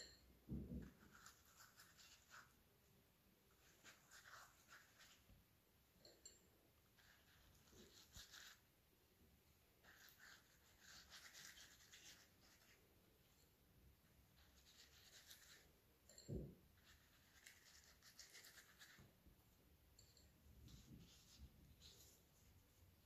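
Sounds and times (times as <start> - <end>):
pastry brush scratching: 0.8 - 2.7, 3.5 - 5.4, 6.8 - 8.7, 9.8 - 13.4, 14.1 - 15.8, 16.8 - 19.2, 20.6 - 23.0.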